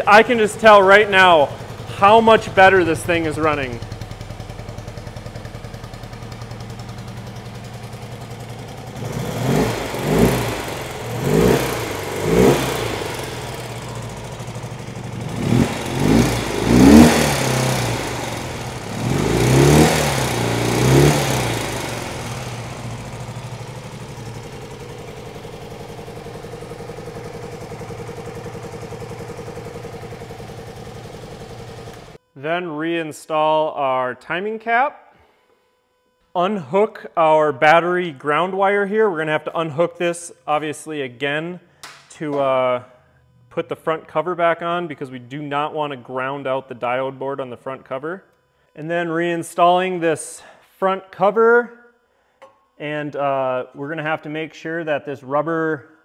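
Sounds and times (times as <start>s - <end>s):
motorcycle engine idling and revving: 0.0s - 32.3s.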